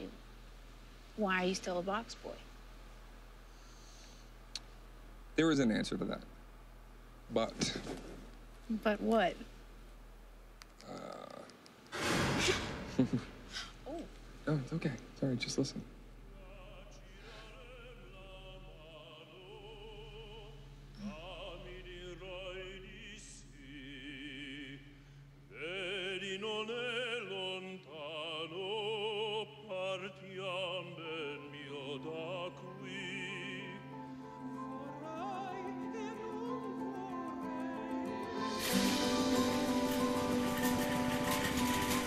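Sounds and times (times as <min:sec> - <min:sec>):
operatic singing: 0:16.2 - 0:42.0
orchestral accompaniment: 0:32.9 - 0:42.0.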